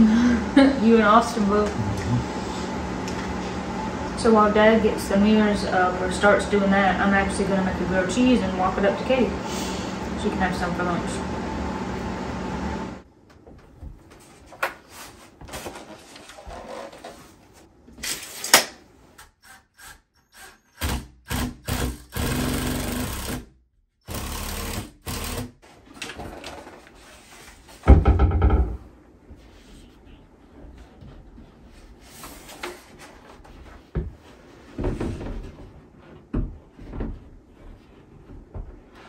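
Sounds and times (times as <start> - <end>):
cordless drill driving fasteners: 19.2 - 23.4, 24.1 - 25.5
mirror bumping against wall: 27.8 - 28.9.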